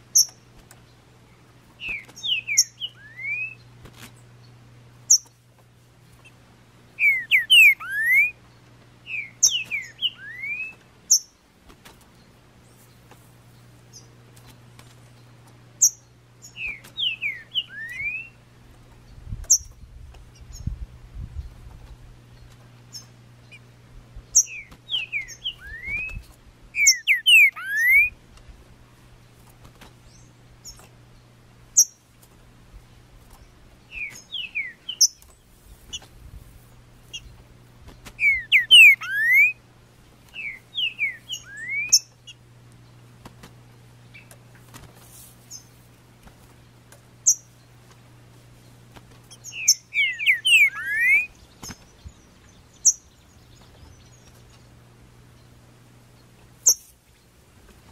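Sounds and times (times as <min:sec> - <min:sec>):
faint low hum: 0:00.0 - 0:57.9
bird whistling song: 0:01.8 - 0:03.7, 0:07.0 - 0:08.4, 0:09.1 - 0:11.3, 0:15.8 - 0:18.4, 0:24.4 - 0:28.2, 0:33.9 - 0:35.2, 0:38.2 - 0:39.6, 0:40.4 - 0:42.4, 0:49.3 - 0:54.3.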